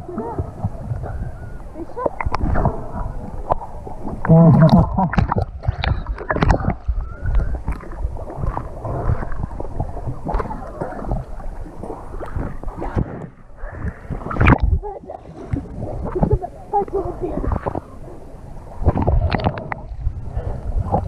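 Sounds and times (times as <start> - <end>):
water sloshing against camera: 0.0 - 21.0
water splash: 2.0 - 16.4.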